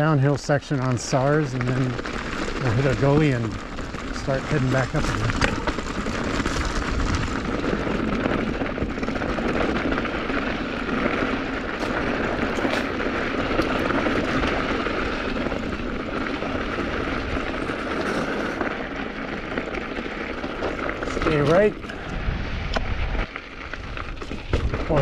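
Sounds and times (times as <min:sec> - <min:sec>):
bike tyre noise: 0:00.0 - 0:25.0
bike knocks and rattles: 0:05.3 - 0:21.6
wind rushing on microphone: 0:21.2 - 0:25.0.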